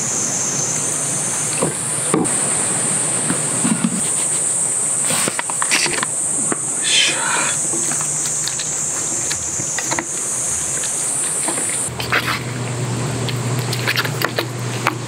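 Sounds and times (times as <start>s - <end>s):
insect chirring: 0.0s - 11.9s.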